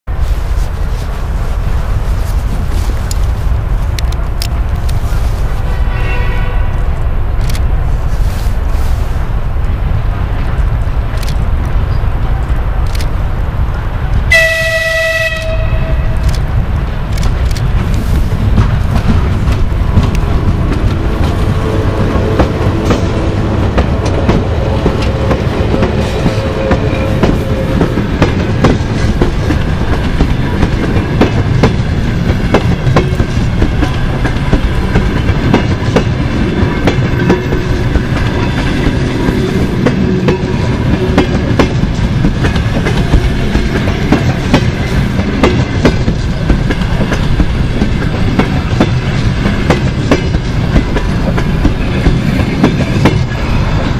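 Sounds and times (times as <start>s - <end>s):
low train rumble: 0.0s - 53.9s
train wheels clattering over joints: 16.2s - 53.9s.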